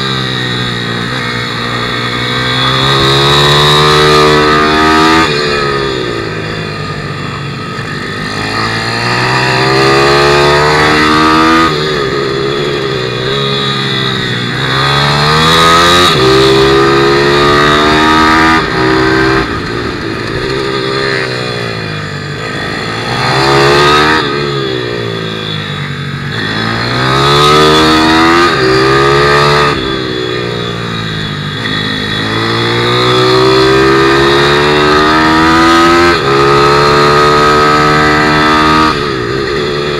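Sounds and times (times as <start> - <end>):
pit bike engine revving: 0.0 - 39.9.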